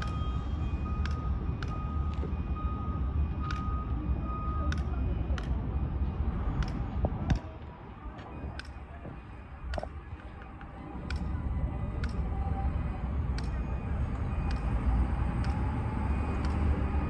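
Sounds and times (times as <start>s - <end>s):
steady low rumble: 0.0s - 17.0s
taps and clicks of paving work: 0.0s - 17.0s.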